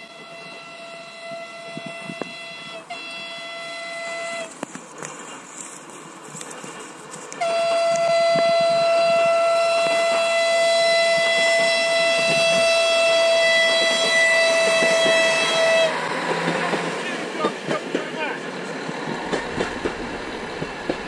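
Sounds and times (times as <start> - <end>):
train horn long blast: 0.0 - 4.6, 7.4 - 16.1.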